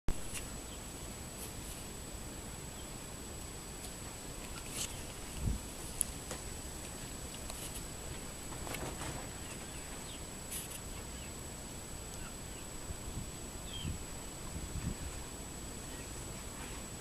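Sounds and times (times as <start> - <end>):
outdoor background hiss: 0.1 - 17.0
soft bumps: 4.8 - 10.2
faint bird chirps: 12.1 - 14.0, 15.8 - 16.9.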